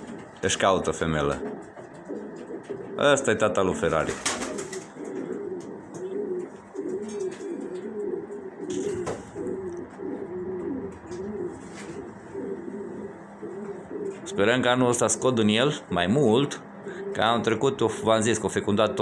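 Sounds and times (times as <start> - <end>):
pigeon cooing: 0.0 - 15.8, 16.4 - 18.1
wings flapping: 4.0 - 8.0.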